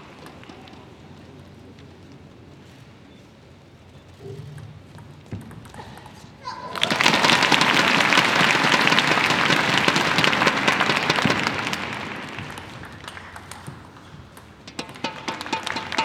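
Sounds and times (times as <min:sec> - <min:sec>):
table tennis ball bouncing: 0:04.2 - 0:06.4, 0:11.0 - 0:16.0
crowd applauding: 0:06.4 - 0:14.1, 0:14.8 - 0:16.0.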